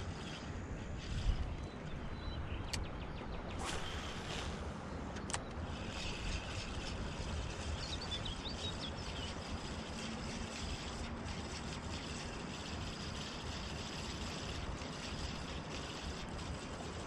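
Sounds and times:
open-air background rumble: 0.0 - 17.0
sharp click: 5.1 - 5.6.

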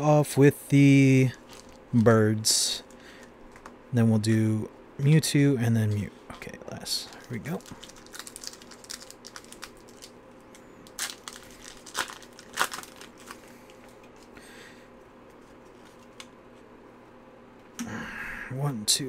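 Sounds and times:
foil wrapper tearing and crinkling: 1.4 - 1.8, 7.3 - 10.2, 10.8 - 13.5.

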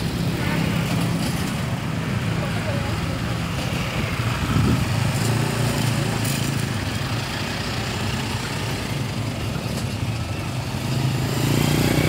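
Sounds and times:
road traffic noise: 0.0 - 12.0
van and motorcycles driving past: 3.0 - 12.0.

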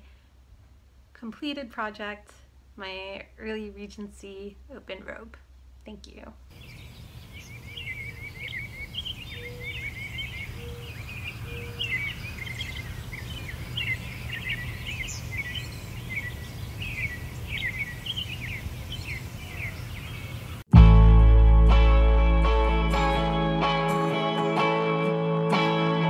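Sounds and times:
birds singing: 6.5 - 20.6
short low notes: 20.7 - 24.1.

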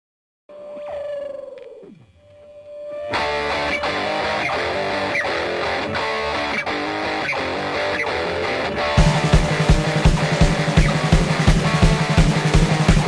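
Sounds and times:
guitar-led band music: 3.0 - 13.0.

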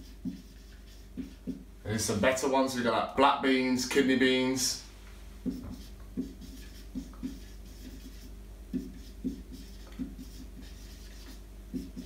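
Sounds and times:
marker writing on whiteboard: 0.0 - 1.6, 5.4 - 12.0.

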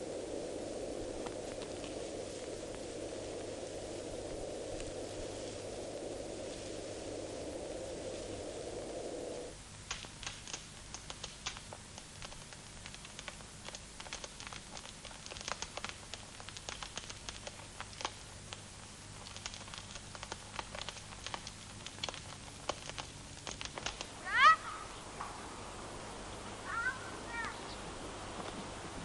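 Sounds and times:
faint steady hum: 0.0 - 29.0
small clicks and scratches: 9.9 - 24.1.

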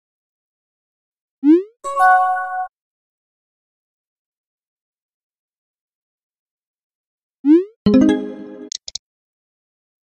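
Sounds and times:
message chime: 7.9 - 8.7.

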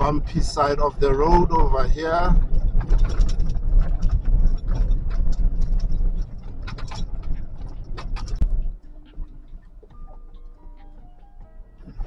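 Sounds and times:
car road rumble on gravel: 0.0 - 12.0
rattles and knocks: 0.0 - 12.0.

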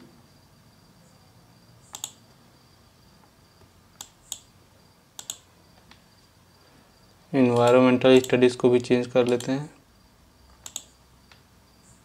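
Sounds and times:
computer mouse buttons clicking: 1.9 - 2.2, 4.0 - 4.5, 5.2 - 6.0, 9.2 - 9.6, 10.5 - 11.4.

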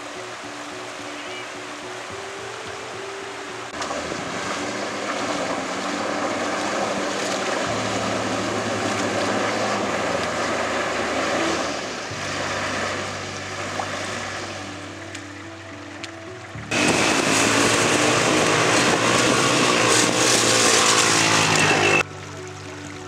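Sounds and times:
water splashing: 0.0 - 23.0
truck engine running: 3.8 - 15.2, 16.6 - 22.0.

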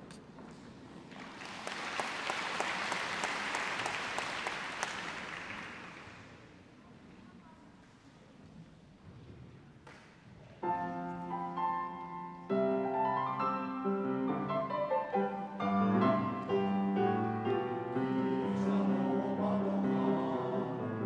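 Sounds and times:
grand piano chords: 10.6 - 21.0.

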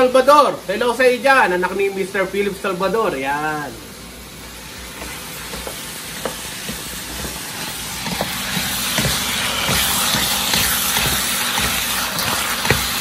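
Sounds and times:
chicken sizzling in a pan: 2.5 - 13.0
utensil stirring clicks: 8.0 - 13.0.

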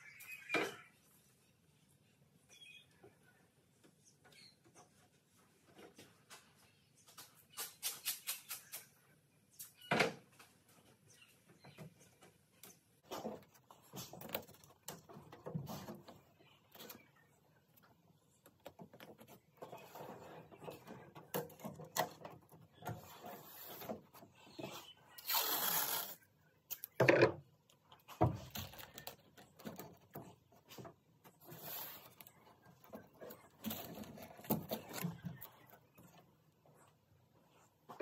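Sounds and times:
masking tape peeling: 25.2 - 26.2.

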